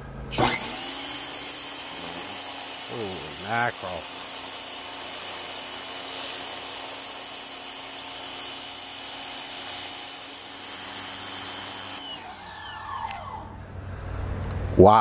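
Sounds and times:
pressure washer spraying concrete: 0:00.4 - 0:12.0.

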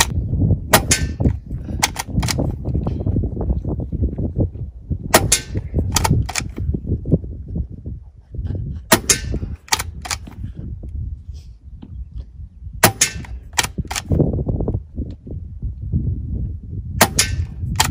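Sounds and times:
air rifle shots: 0:00.7 - 0:02.6, 0:05.1 - 0:06.7, 0:08.9 - 0:10.4, 0:12.8 - 0:14.2, 0:17.0 - 0:17.9
rifle cocking clicks: 0:01.8 - 0:02.4, 0:05.2 - 0:06.6, 0:09.7 - 0:10.4, 0:12.9 - 0:14.1, 0:17.1 - 0:17.9.

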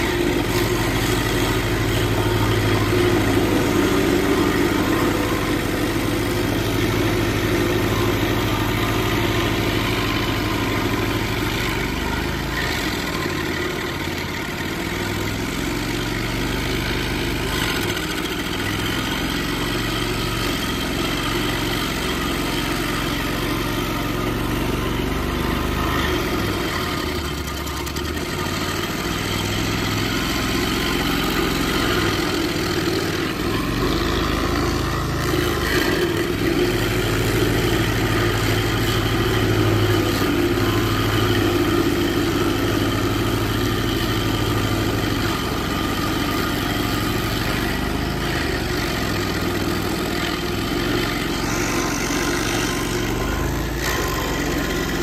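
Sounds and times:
cutter wheel grinding wood: 0:00.0 - 0:55.0
stump grinder engine running: 0:00.0 - 0:55.0.

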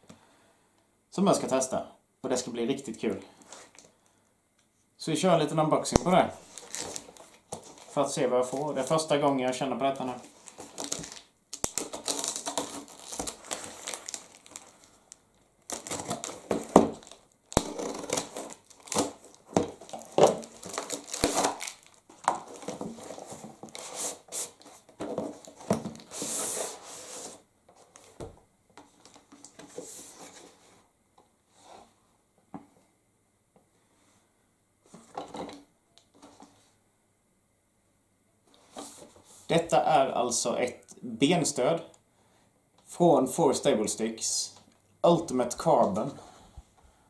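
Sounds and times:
paper rustling and tearing: 0:10.2 - 0:14.8, 0:15.7 - 0:24.6.

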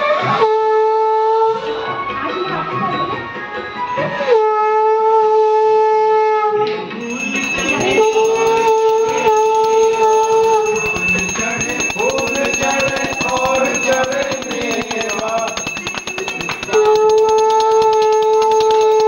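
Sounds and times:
fast rhythmic clatter: 0:07.0 - 0:19.0
voices: 0:07.0 - 0:19.0.

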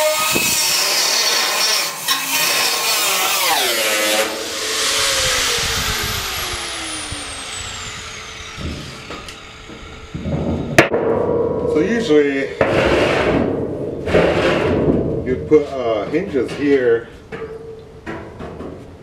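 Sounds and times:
angle grinder cutting steel: 0:00.0 - 0:10.3.

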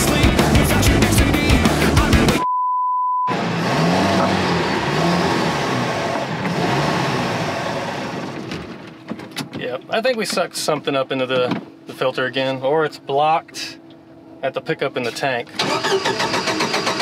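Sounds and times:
rock music: 0:00.0 - 0:02.4
censor bleep: 0:02.4 - 0:03.3
wind: 0:03.6 - 0:17.0.

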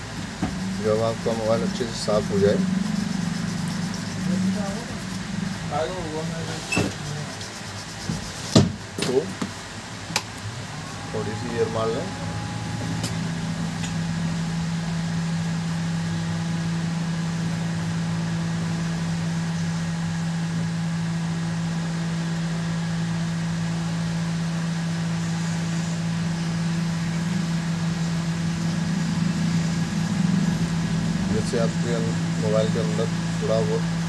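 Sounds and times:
handheld air blower running: 0:00.0 - 0:09.3, 0:10.5 - 0:16.0.

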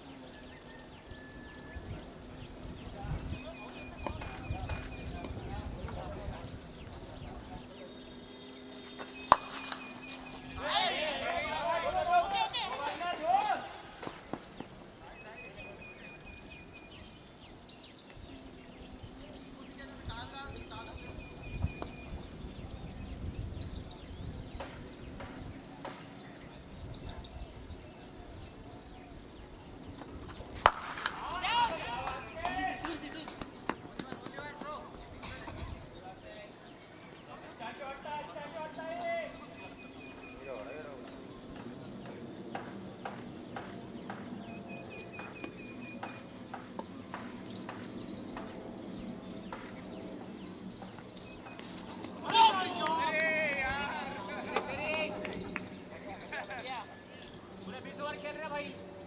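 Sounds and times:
insects chirping in high trills: 0:00.0 - 0:59.0
faint high bird chirps: 0:00.1 - 0:10.8, 0:14.6 - 0:30.6
low wind rumble on microphone: 0:00.4 - 0:08.3, 0:15.7 - 0:34.0, 0:34.7 - 0:36.2.

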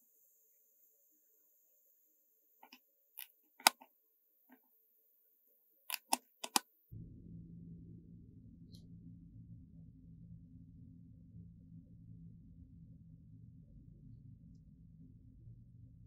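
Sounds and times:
metal tweezers clicking: 0:05.9 - 0:06.6.

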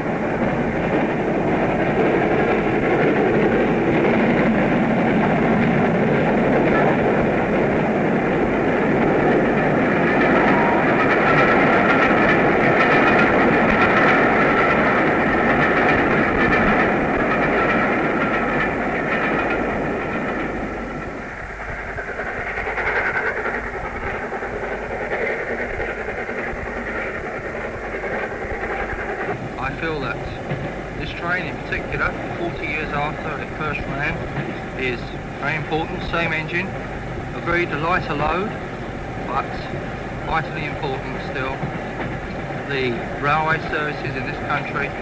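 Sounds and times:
steam train rumble and clatter: 0:00.0 - 0:45.0.

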